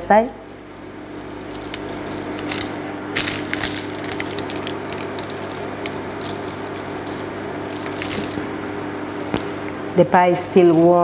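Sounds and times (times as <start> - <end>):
baking paper crinkling: 0.4 - 8.6.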